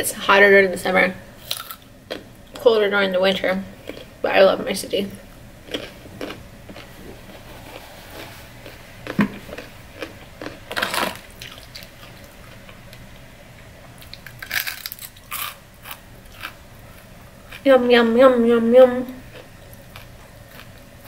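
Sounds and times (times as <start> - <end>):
soft chewing and mouth sounds: 3.8 - 4.1, 5.3 - 17.7, 19.2 - 21.0.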